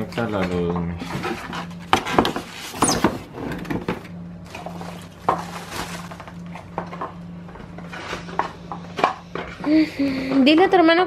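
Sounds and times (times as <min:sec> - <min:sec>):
low steady hum: 0:00.0 - 0:11.0
cardboard packaging knocks and rustles: 0:04.9 - 0:06.4.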